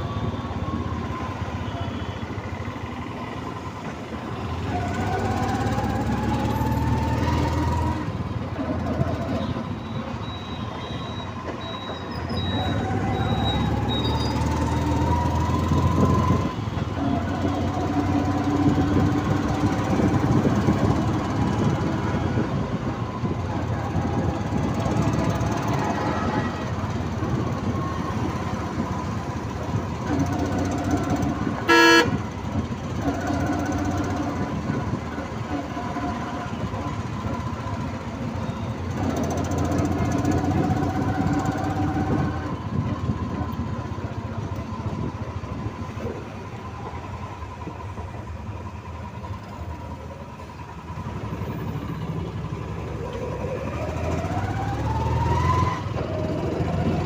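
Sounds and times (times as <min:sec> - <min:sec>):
auto-rickshaw engine running: 0:00.0 - 0:57.0
road noise: 0:00.0 - 0:57.0
loud horn honk: 0:31.6 - 0:32.2
distant traffic honking: 0:31.6 - 0:32.4.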